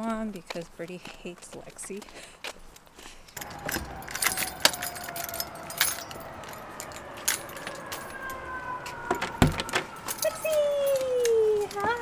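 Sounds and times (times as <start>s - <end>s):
keys jangling: 3.4s - 8.5s, 10.0s - 11.9s.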